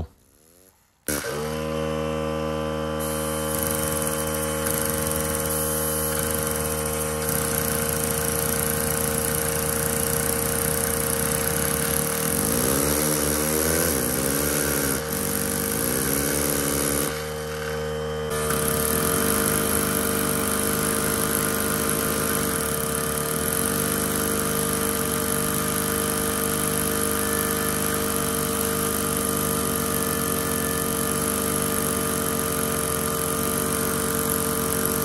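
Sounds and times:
small pneumatic engine buzzing: 0.0s - 35.0s.

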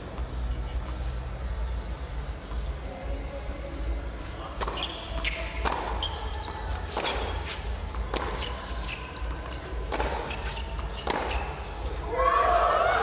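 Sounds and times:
racquet striking tennis ball: 4.6s - 9.1s, 9.8s - 11.7s
tennis ball bouncing: 4.6s - 11.9s.

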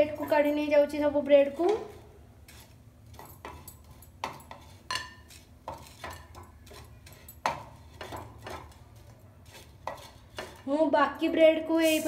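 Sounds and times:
wooden spatula scraping a pan: 1.4s - 10.8s, 11.7s - 12.0s.

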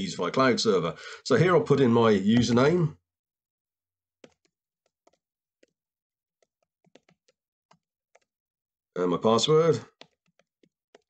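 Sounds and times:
typing on computer keyboard: 4.2s - 5.8s, 6.4s - 8.3s, 10.0s - 11.0s.

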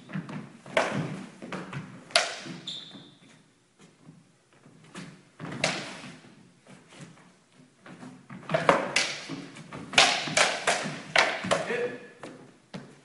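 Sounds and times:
wooden sticks clashing: 9.9s - 11.8s.

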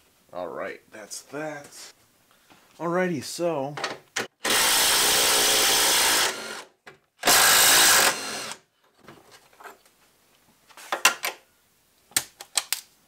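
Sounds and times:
power tool running: 4.4s - 8.6s.

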